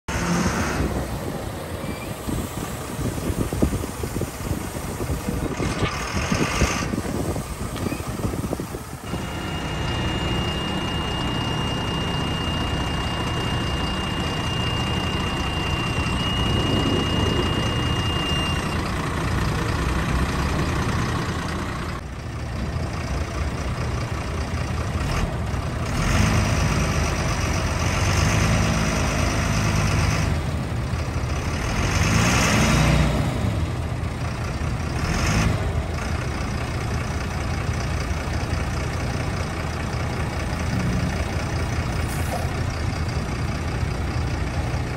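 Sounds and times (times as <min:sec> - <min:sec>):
truck diesel engine: 0:00.0 - 0:44.9
steady high whine: 0:07.1 - 0:19.4.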